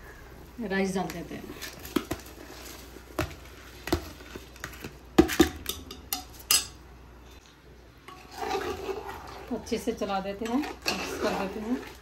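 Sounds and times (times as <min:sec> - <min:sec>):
metal spoon scraping a pot: 0:08.1 - 0:12.0.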